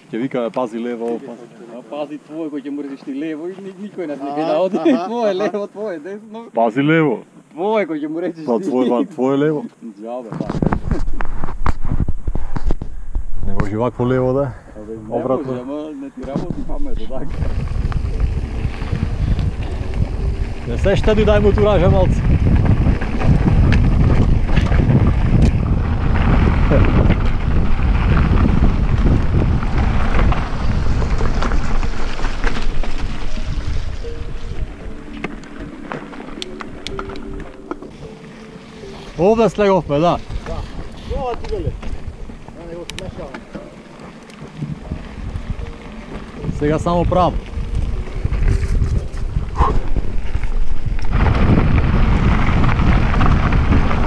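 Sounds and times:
wind buffeting microphone: 10.5 - 38.1, 38.8 - 54.0.

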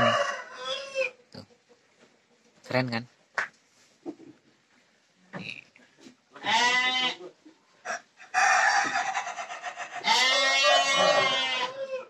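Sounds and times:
rooster crowing: 0.0 - 1.2, 7.9 - 12.0
sheep bleating: 6.4 - 7.3, 10.0 - 11.9.

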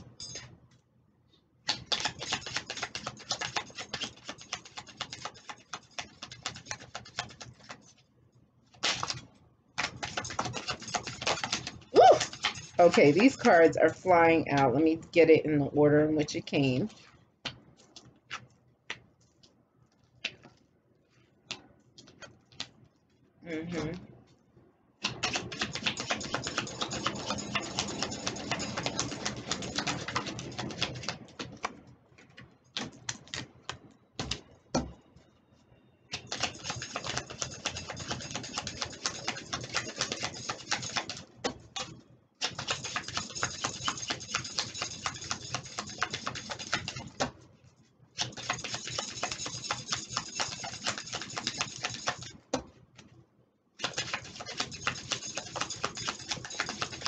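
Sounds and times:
cards being shuffled: 1.7 - 7.8, 9.8 - 13.2, 17.4 - 20.7, 21.4 - 23.1.

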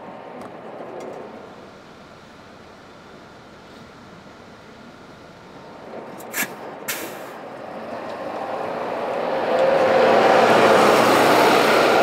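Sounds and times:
bus engine running: 0.0 - 12.0
bus air brake hisses: 6.2 - 7.4.

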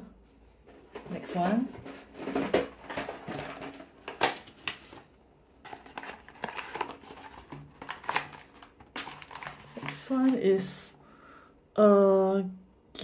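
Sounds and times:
paper wrapping crinkling: 1.8 - 10.4
cardboard box being opened: 5.6 - 10.4.

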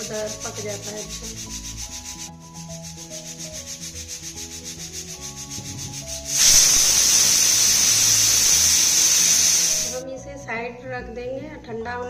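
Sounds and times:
pressure cooker whistle: 5.9 - 10.0.

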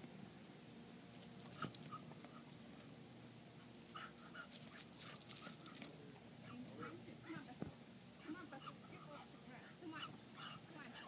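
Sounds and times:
dog panting: 3.9 - 7.6, 8.4 - 11.0
dog excited sounds: 4.0 - 7.4.

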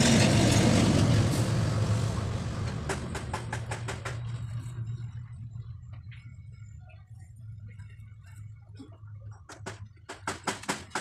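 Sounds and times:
truck engine drone: 0.0 - 10.0.

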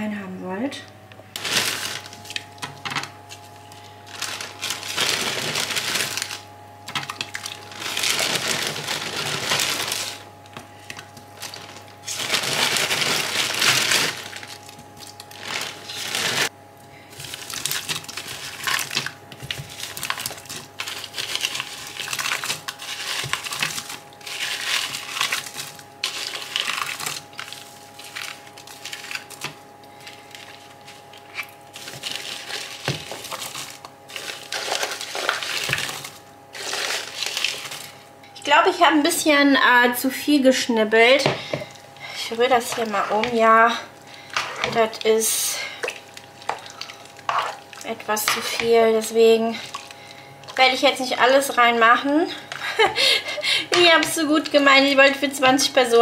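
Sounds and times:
vegetables scraped into a pot: 17.4 - 38.0, 44.2 - 48.8.

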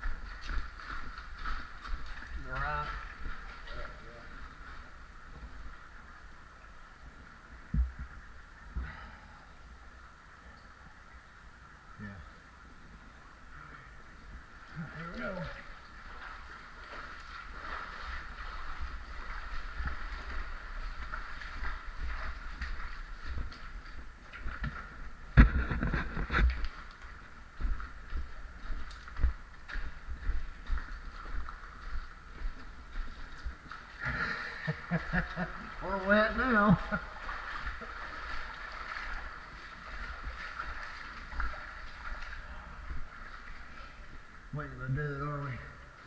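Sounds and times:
feet splashing through water: 0.0 - 6.4, 14.2 - 44.5.

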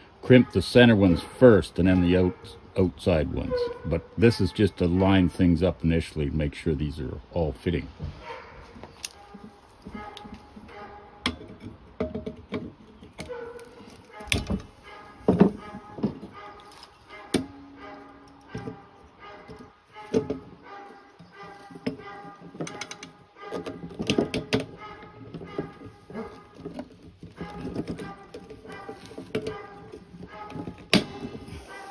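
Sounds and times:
metallic clicks and knocks of tools: 21.8 - 25.7.

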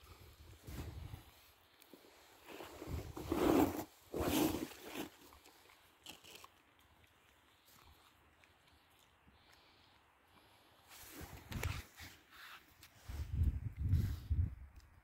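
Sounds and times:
bear cub chewing: 4.6 - 10.6.

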